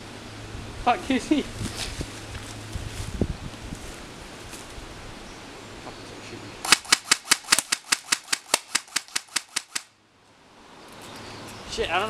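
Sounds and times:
faint outdoor background: 0.0s - 12.0s
airsoft rifles firing: 6.6s - 9.9s.

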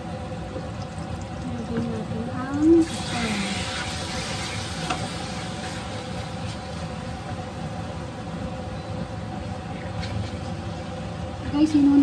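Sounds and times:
steady mechanical hum: 0.0s - 12.0s
chicken livers sizzling in a pan: 2.4s - 7.6s.

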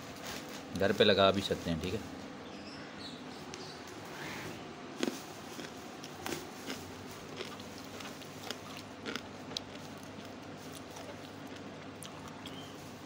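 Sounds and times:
steady low hum: 0.0s - 13.0s
person chewing crunchy melons: 5.0s - 13.0s.

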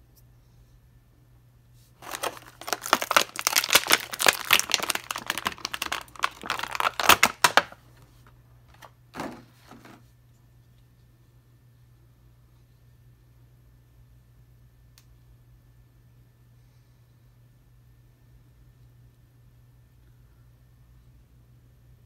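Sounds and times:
plastic bag crinkling: 2.0s - 7.8s.

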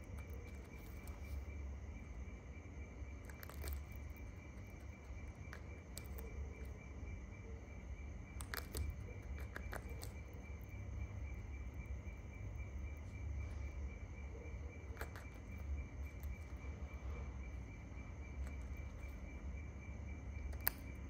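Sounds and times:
faint irregular clicks: 8.3s - 10.9s, 20.3s - 21.0s.

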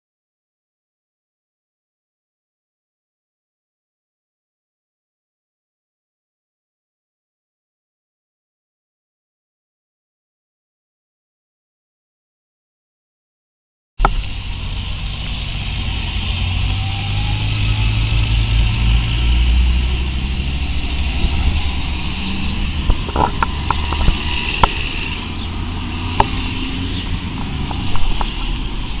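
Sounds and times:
car engines rumbling: 14.0s - 29.0s
road noise: 14.0s - 29.0s.

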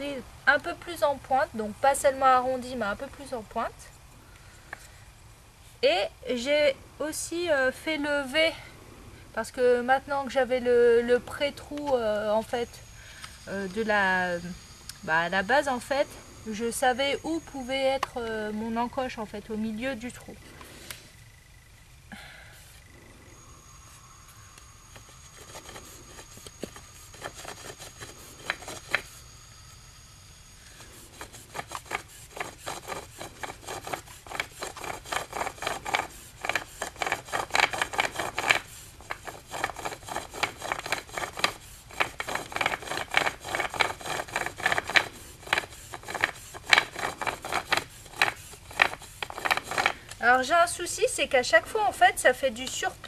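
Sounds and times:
bow drill spindle rubbing: 22.7s - 50.6s.

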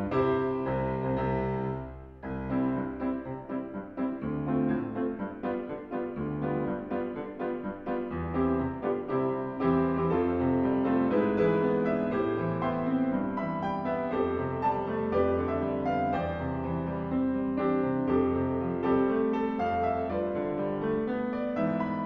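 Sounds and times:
background piano music: 0.0s - 22.0s.

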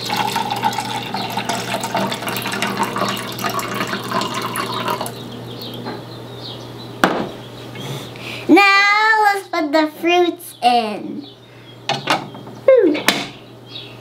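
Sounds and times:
water pouring into plastic jar: 0.0s - 5.2s.

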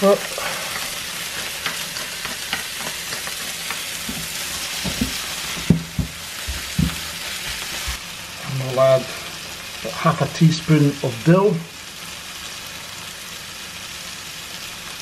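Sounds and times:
food sizzling in a frying pan: 0.0s - 15.0s
spoon knocking against pan: 4.0s - 7.7s.

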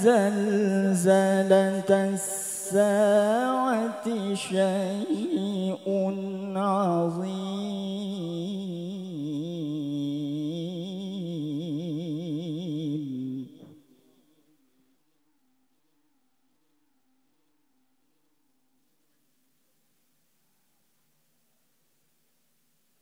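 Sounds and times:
man chanting recitation: 0.0s - 14.0s.

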